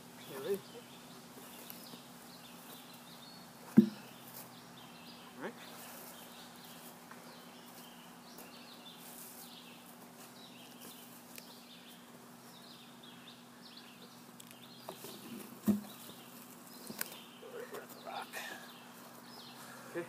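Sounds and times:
small birds chirping: 0:00.0 - 0:20.0
log thumping on ground: 0:03.7 - 0:04.2, 0:15.0 - 0:16.2.

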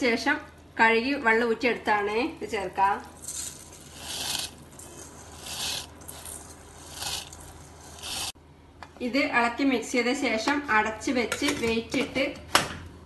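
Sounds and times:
wet rice scraping metal bowl: 0:03.2 - 0:08.4.

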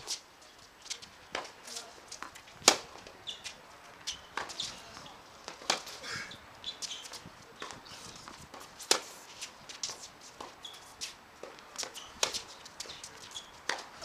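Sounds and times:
tennis balls struck and bouncing: 0:00.8 - 0:06.0, 0:06.6 - 0:14.0
shoe squeaks: 0:03.2 - 0:05.2, 0:06.1 - 0:08.3, 0:09.3 - 0:11.2, 0:11.8 - 0:14.0.

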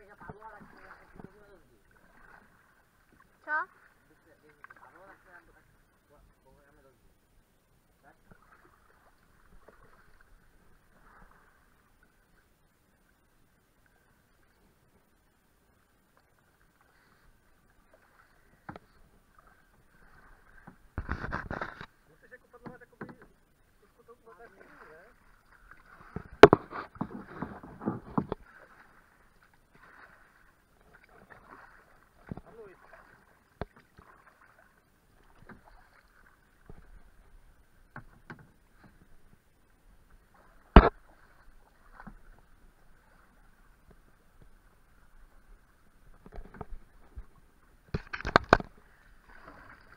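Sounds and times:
paddle in water: 0:00.0 - 0:49.9
paddle knocking on canoe hull: 0:22.6 - 0:23.4, 0:25.8 - 0:28.6, 0:37.9 - 0:39.3.

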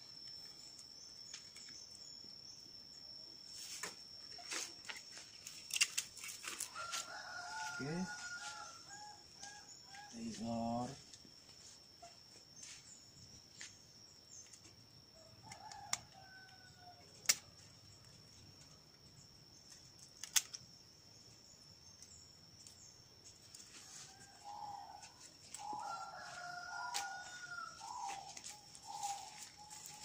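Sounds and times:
rooster crowing: 0:06.5 - 0:10.3, 0:23.7 - 0:30.0.

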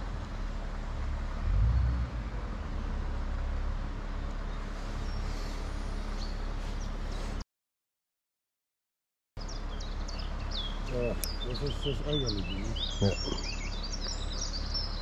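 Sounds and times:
outdoor rumble and hiss: 0:00.0 - 0:07.4, 0:09.4 - 0:15.0
faint bird chirps: 0:09.4 - 0:15.0.

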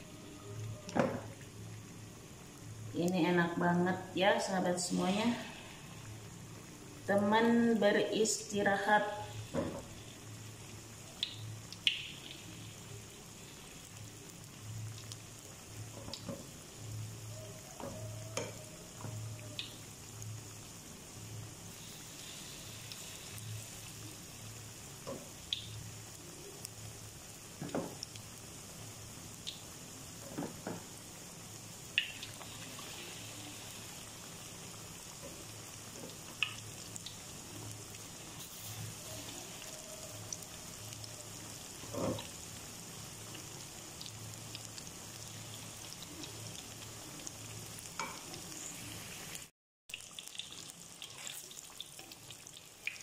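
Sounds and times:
deep-frying sizzle: 0:00.0 - 0:53.0
oil popping: 0:11.2 - 0:12.9, 0:31.9 - 0:33.0.

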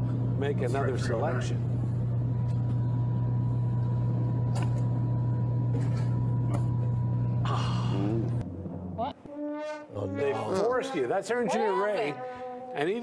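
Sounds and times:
vending machine humming: 0:00.0 - 0:09.2.

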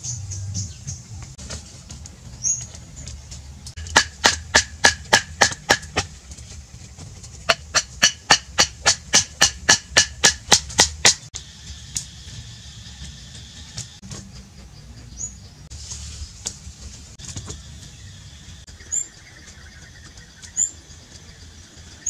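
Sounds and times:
rapid sharp knocking: 0:03.8 - 0:06.2, 0:07.4 - 0:11.3.

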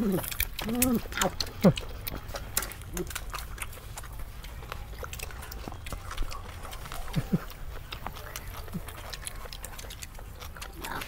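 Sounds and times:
person chewing food: 0:00.0 - 0:11.0
wet mouth smacking: 0:00.0 - 0:11.0.

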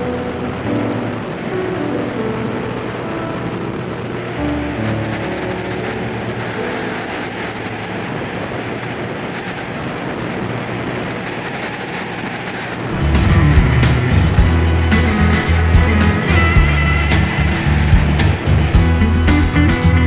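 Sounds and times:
light aircraft engine drone: 0:00.0 - 0:20.0
music with heavy beat: 0:12.9 - 0:20.0.

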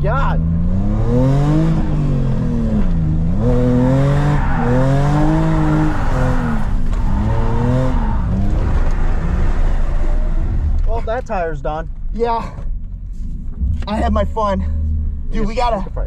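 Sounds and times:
car engine revving: 0:00.0 - 0:12.2, 0:12.8 - 0:16.0
tires squealing and skidding: 0:03.4 - 0:10.2.

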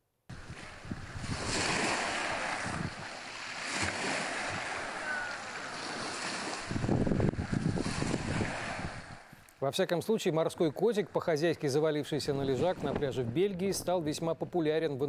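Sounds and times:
surf on pebble beach: 0:00.3 - 0:09.4
wind rumbling on microphone: 0:00.3 - 0:09.4, 0:12.3 - 0:14.0.

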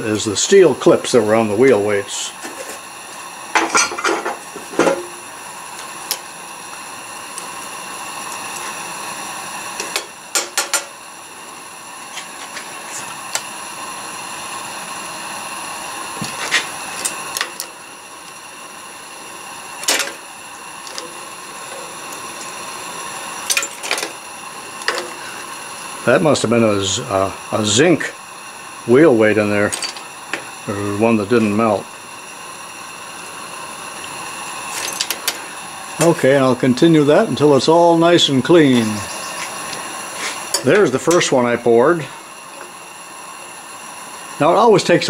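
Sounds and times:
gas furnace hissing: 0:00.0 - 0:45.0.

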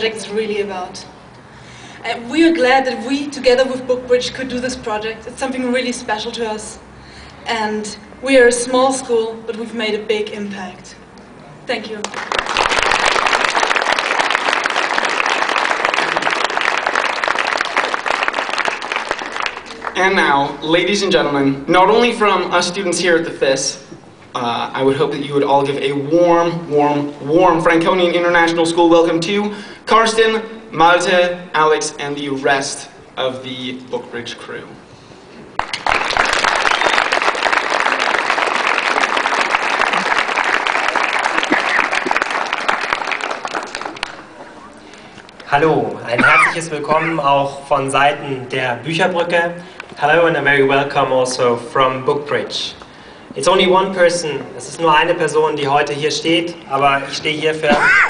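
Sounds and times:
audience applauding: 0:12.0 - 0:20.0, 0:35.6 - 0:45.0.

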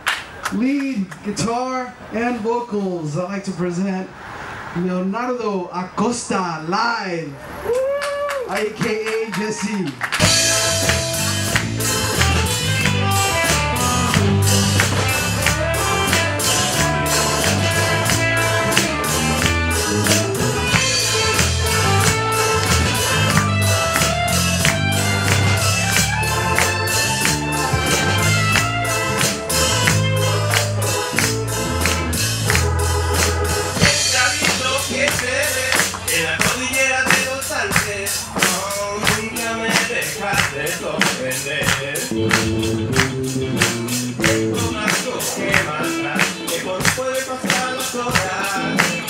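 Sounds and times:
drum kit: 0:10.0 - 0:49.0
electric bass: 0:10.1 - 0:49.0
electric guitar: 0:10.1 - 0:49.0.

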